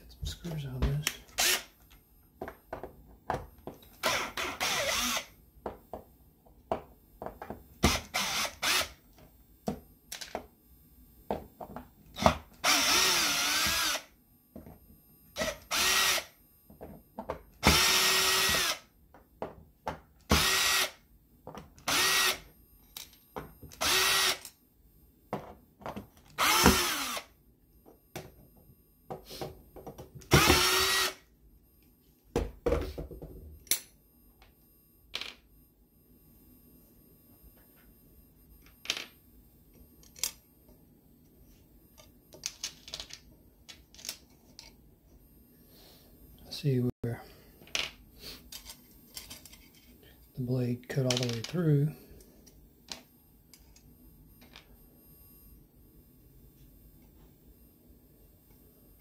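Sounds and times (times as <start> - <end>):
cordless drill motor whining: 1.3 - 1.8, 3.9 - 5.4, 7.8 - 9.0, 12.2 - 14.2, 15.4 - 16.4, 17.6 - 18.9, 20.3 - 21.0, 21.8 - 22.5, 23.7 - 24.5, 26.3 - 27.4, 30.3 - 31.3.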